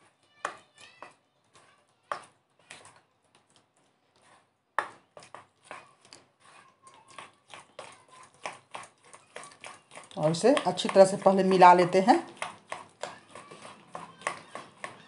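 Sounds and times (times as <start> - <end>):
spoon clinking and scraping bowl: 4.1 - 15.0.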